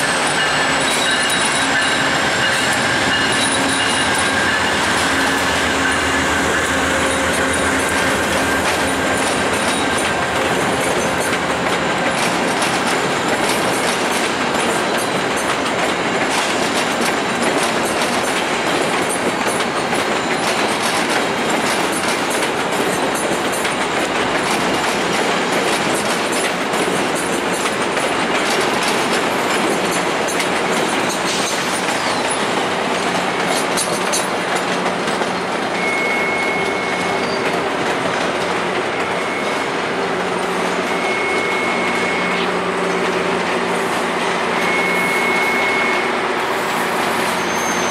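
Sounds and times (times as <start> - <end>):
train wheels clickety-clack: 0.0 - 47.9
thin wheel squeal: 40.6 - 42.5, 44.6 - 46.1, 47.2 - 47.9.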